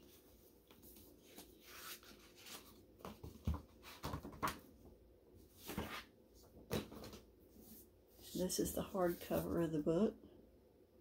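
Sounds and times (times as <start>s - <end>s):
book rustling and soft knocks: 0.1s - 4.7s, 5.5s - 9.7s.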